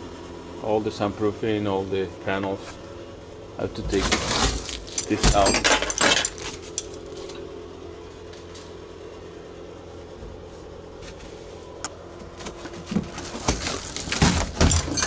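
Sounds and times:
steady low hum: 0.0 - 15.0
insulation rustling: 3.7 - 7.4.

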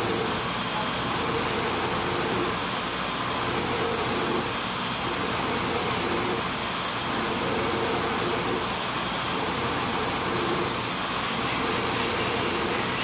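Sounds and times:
milling machine cutting: 0.0 - 13.0.

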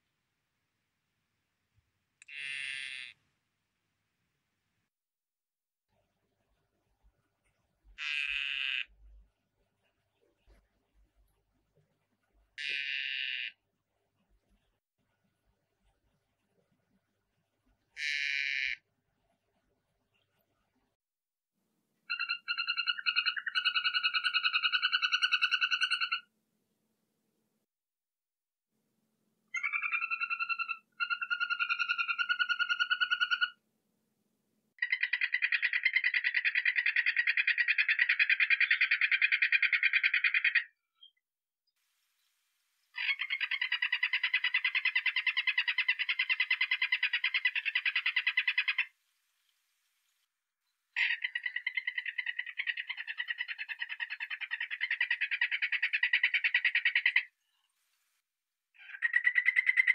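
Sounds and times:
frog buzzy trill: 2.2 - 3.2, 8.0 - 8.9, 12.6 - 13.6
frog trilling call: 2.2 - 3.2, 8.0 - 8.9, 12.6 - 13.6, 18.0 - 18.8, 22.1 - 26.3, 29.6 - 33.6, 34.8 - 40.7, 43.0 - 48.9, 51.0 - 57.3, 58.8 - 59.9.

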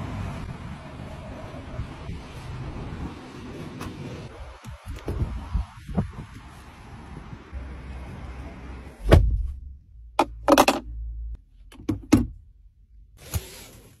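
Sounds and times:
clicks and rustles in car: 10.2 - 10.9.

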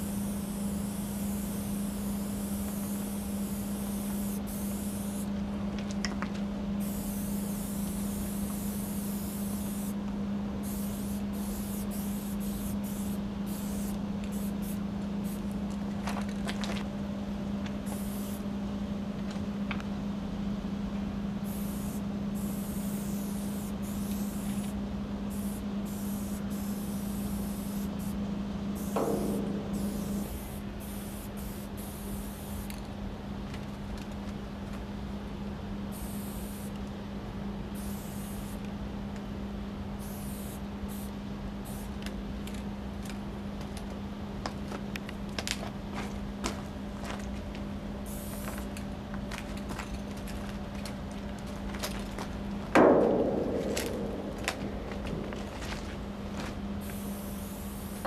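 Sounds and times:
spray paint can hissing: 0.0 - 5.3, 6.8 - 10.0, 10.6 - 15.5, 17.8 - 18.4, 21.4 - 28.2, 28.8 - 32.8, 35.9 - 36.8, 37.8 - 38.7, 40.0 - 42.0, 48.1 - 48.6, 56.8 - 58.0
steady low hum: 0.0 - 58.0.

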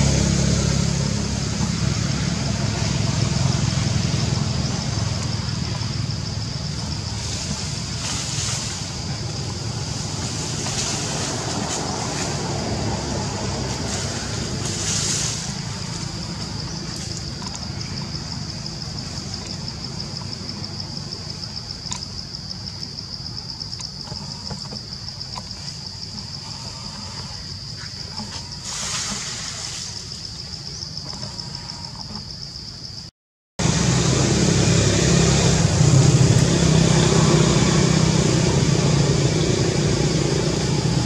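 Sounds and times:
cicadas droning: 0.0 - 41.0
leaves and branches rustling: 6.6 - 21.6, 24.0 - 32.2.

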